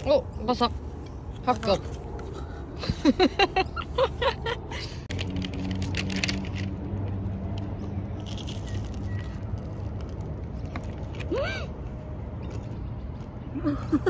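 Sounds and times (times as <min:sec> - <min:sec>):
pastry crackling as chewed: 0:05.1 - 0:11.4.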